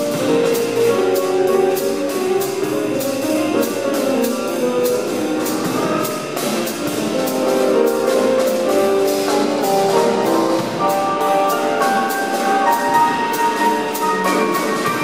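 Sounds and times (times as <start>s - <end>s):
double bass: 0.0s - 15.0s
grand piano: 0.0s - 15.0s.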